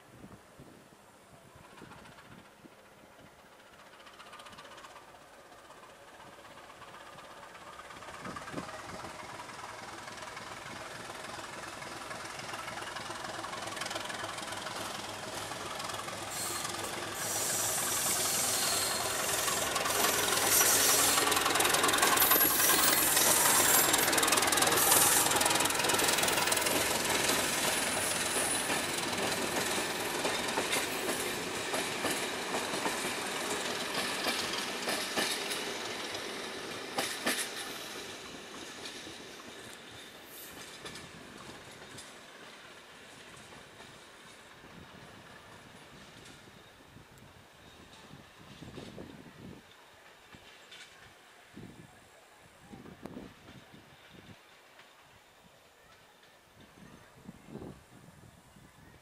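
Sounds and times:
diesel locomotive engine under load: 1.3s - 58.9s
clicking rail joints: 7.8s - 36.2s, 50.0s - 51.2s
high-pitched wheel squeal: 16.3s - 21.2s.

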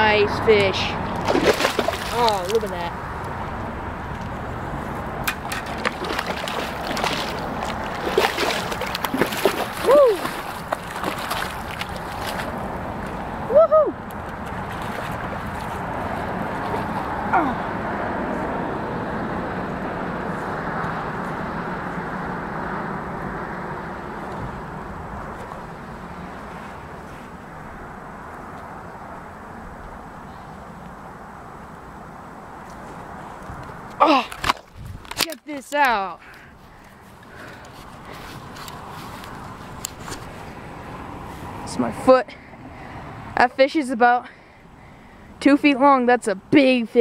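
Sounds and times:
steady outdoor rushing noise: 0.0s - 47.0s
fish splashing at water surface: 1.1s - 2.7s, 5.2s - 12.6s.

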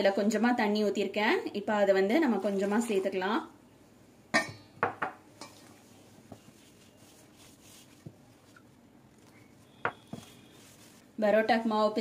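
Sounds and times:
hand mixing flour in bowl: 2.2s - 3.3s, 5.5s - 11.9s.

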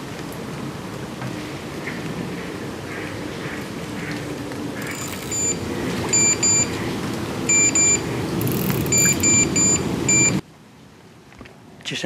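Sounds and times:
electronic bite alarm bleeps: 5.0s - 6.7s, 7.5s - 8.0s, 8.9s - 10.4s.

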